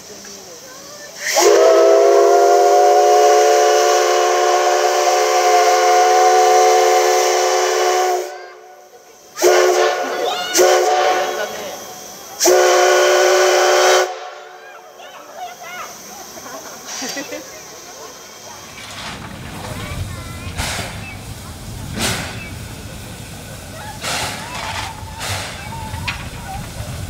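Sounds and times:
steam whistle blasts: 1.2 - 14.6.

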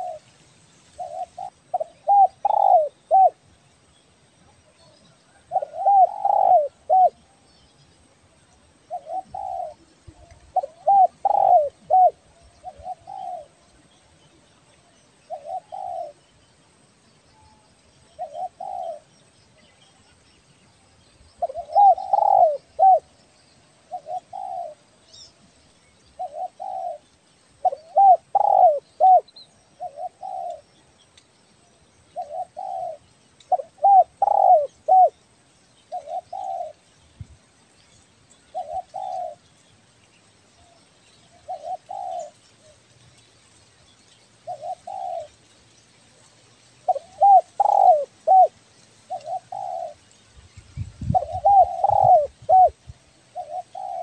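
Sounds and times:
dove cooing: 0.0 - 0.3, 1.0 - 3.5, 4.8 - 7.3, 8.9 - 13.8, 15.3 - 16.2, 18.2 - 19.1, 21.4 - 23.1, 23.8 - 24.9, 26.2 - 30.7, 32.2 - 35.2, 35.9 - 36.8, 38.5 - 39.4, 41.4 - 42.8, 44.4 - 45.4, 46.9 - 50.0, 51.0 - 54.0.

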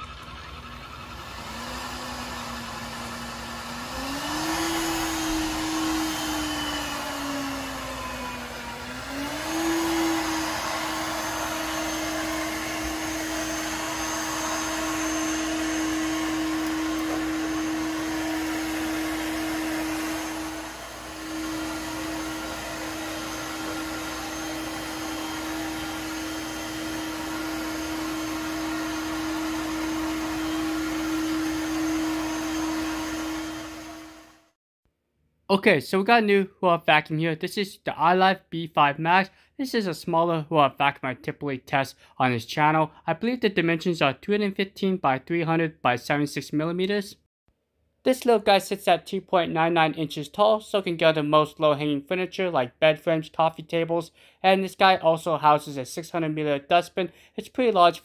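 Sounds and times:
robot vacuum motor whine: 0.0 - 34.5.

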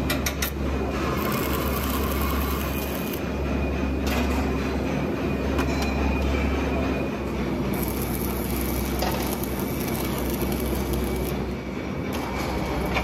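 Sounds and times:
welding arc hissing and crackling: 1.0 - 3.2, 7.7 - 11.4.

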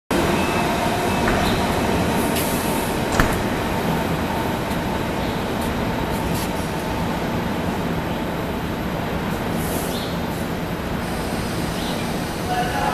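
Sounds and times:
train rolling to a stop: 0.1 - 8.4.

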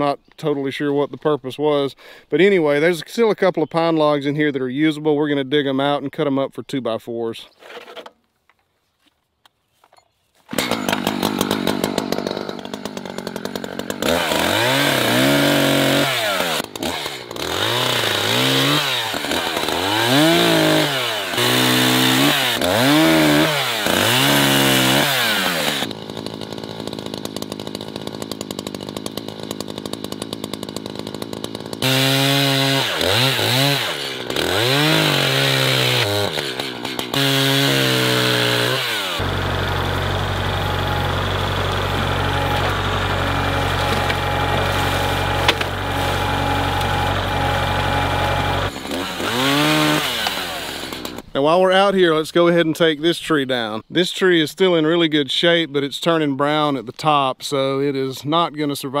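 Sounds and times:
chainsaw revving: 10.5 - 51.3
tractor engine idling: 39.2 - 49.5.

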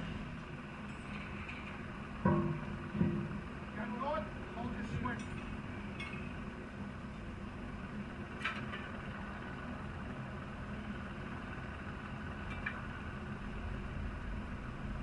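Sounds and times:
low engine rumble: 0.0 - 15.0
metal clinking on steel: 5.0 - 6.4.

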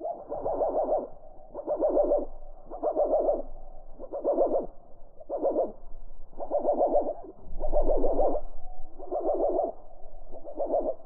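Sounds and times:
slowed bird calls hooting warbles: 0.0 - 11.0.

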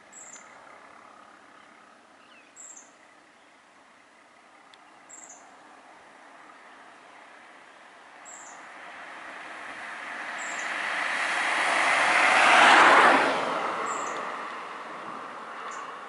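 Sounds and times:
car driving past: 8.2 - 16.0.

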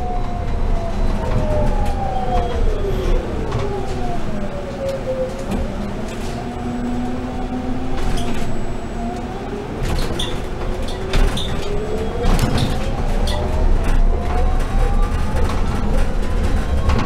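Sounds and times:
road rumble: 0.0 - 17.0
knocks and rattles in cabin: 9.8 - 17.0.

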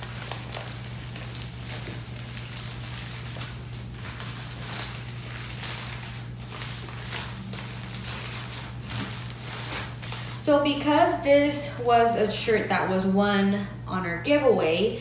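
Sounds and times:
faint rustling of packaging: 0.0 - 10.5
steady low hum: 0.0 - 15.0.

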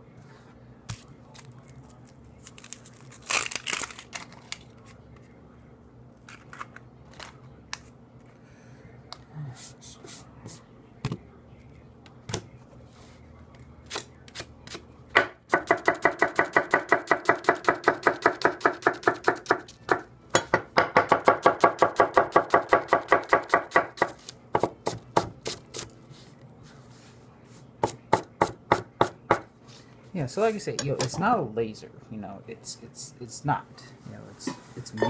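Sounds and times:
knife chopping on wooden board: 13.9 - 25.9.

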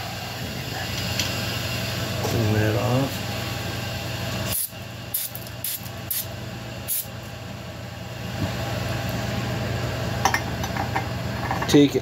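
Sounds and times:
low shop hum: 0.0 - 12.0
aerosol spray hissing: 4.5 - 6.3, 6.9 - 7.1.

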